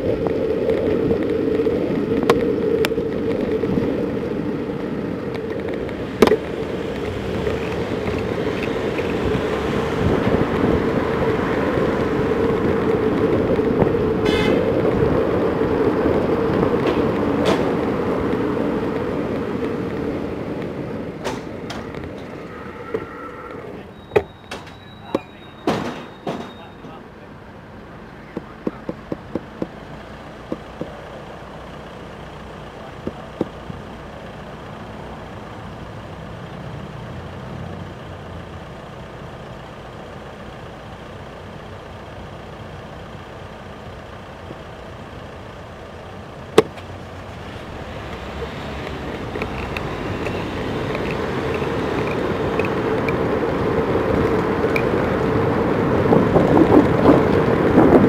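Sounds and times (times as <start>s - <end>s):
road traffic: 0.0s - 58.0s
wind noise on microphone: 6.7s - 21.2s, 49.0s - 58.0s
sharp clicks: 48.1s - 53.3s.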